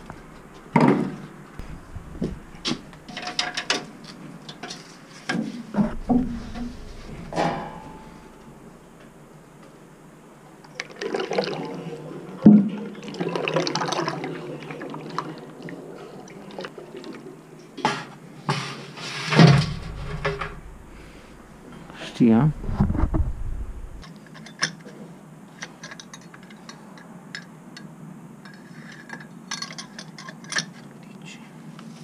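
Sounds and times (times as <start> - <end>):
metal bucket clattering: 5.8 - 9.0, 19.3 - 21.9.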